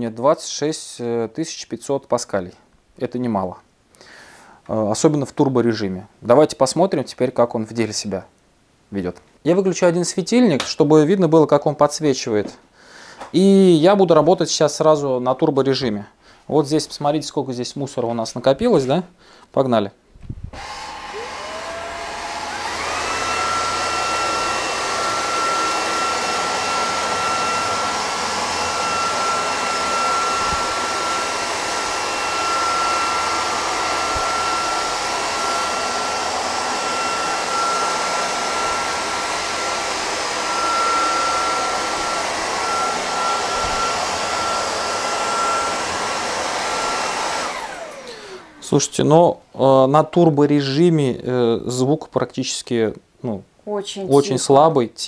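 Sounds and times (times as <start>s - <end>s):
stick vacuum motor whining: 20.6s - 48.9s.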